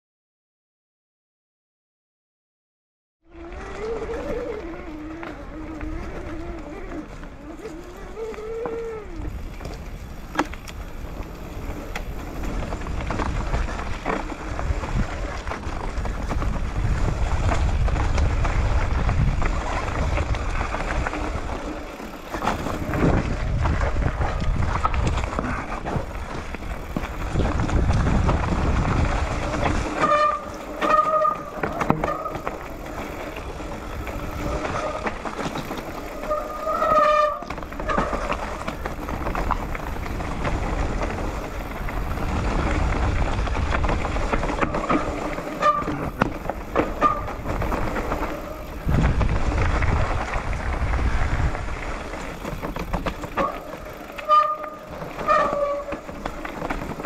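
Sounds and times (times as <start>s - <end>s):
bike tyres rolling over dirt: 3.2s - 57.0s
bike rattling over bumps: 3.3s - 57.0s
wind buffeting microphone: 3.4s - 57.0s
bike brakes squealing: 29.9s - 33.3s, 36.0s - 38.3s, 45.4s - 46.2s, 46.9s - 47.6s, 53.4s - 56.1s.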